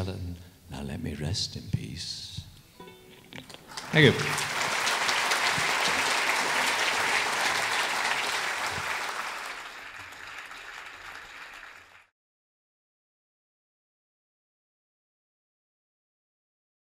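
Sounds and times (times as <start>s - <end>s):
audience applauding: 3.6s - 12.1s.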